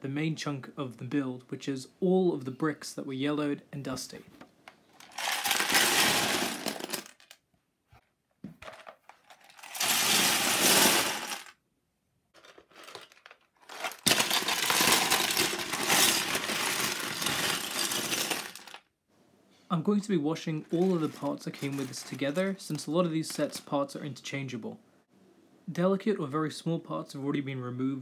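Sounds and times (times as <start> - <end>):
plastic bricks poured into tub: 5.0 - 7.4, 8.6 - 11.6, 12.4 - 18.8, 20.6 - 23.7.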